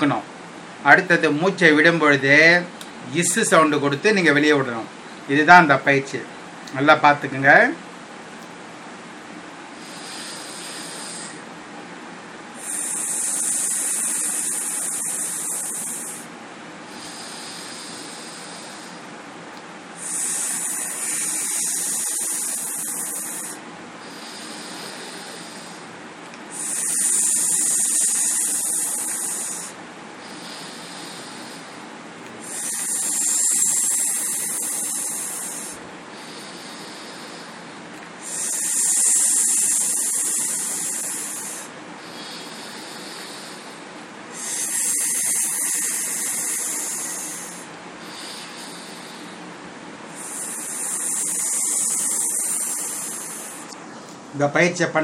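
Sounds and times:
man hissing through teeth: 9.8 - 11.4, 12.6 - 16.3, 20.0 - 25.9, 26.5 - 37.5, 38.2 - 49.4, 50.2 - 53.8
man breathing in: 9.8 - 11.5, 12.5 - 19.1, 20.0 - 54.2.

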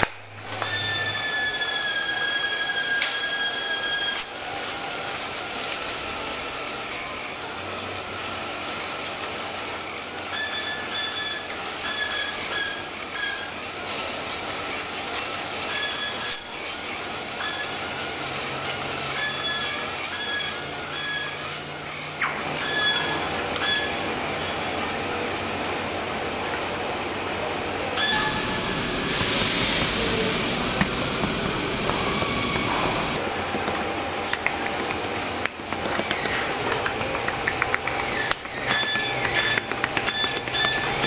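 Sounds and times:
short squeaky tones: 0.0 - 8.3, 9.6 - 25.0, 38.0 - 41.0
machinery whine and hum: 0.0 - 41.0.

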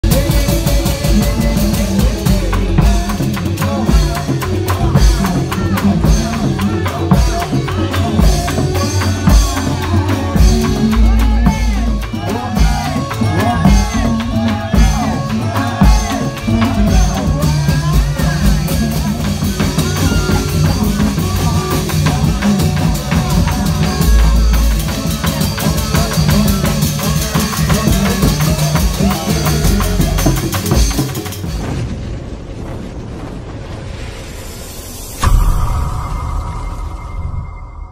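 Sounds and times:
heavy drums beating: 0.0 - 32.2
wavering melody line: 1.2 - 31.2.

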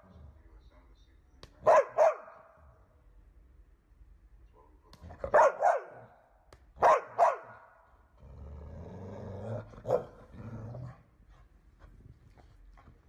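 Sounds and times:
dog barking: 1.6 - 2.6, 4.5 - 6.2, 6.8 - 7.8, 9.8 - 10.2
dog growling: 8.2 - 11.1.

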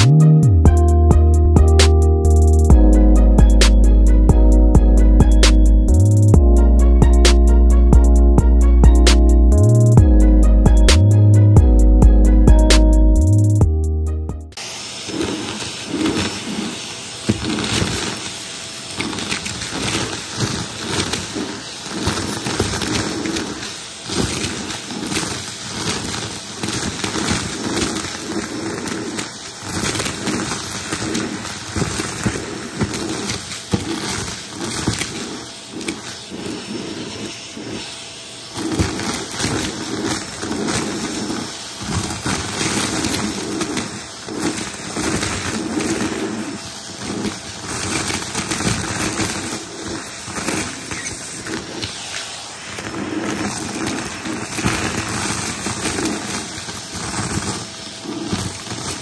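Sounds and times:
debris clicking up vacuum hose: 14.6 - 59.0
vacuum cleaner running: 14.6 - 59.0.

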